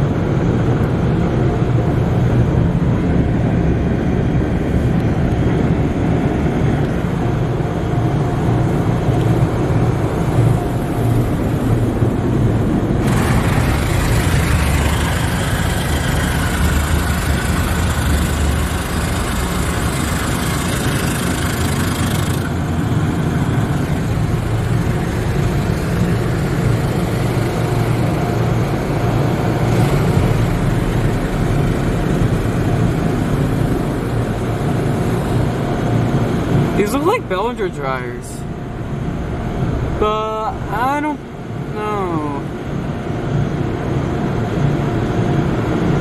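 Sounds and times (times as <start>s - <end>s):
wash machinery rumble: 0.0s - 46.0s
water spraying on car: 8.4s - 37.2s.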